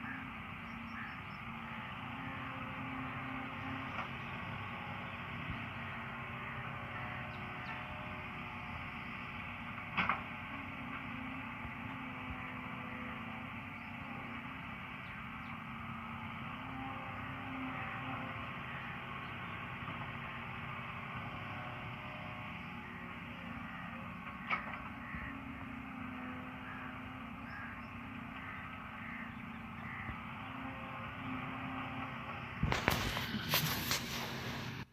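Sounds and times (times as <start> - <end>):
diesel engines running: 0.0 - 34.9
loud rough noise: 29.9 - 34.9.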